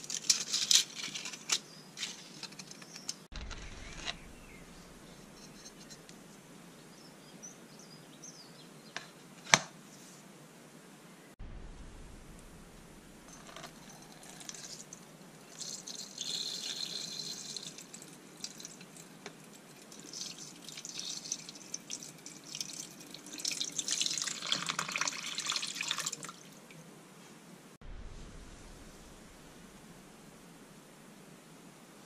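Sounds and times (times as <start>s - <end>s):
water pouring and splashing: 13.7s - 26.6s.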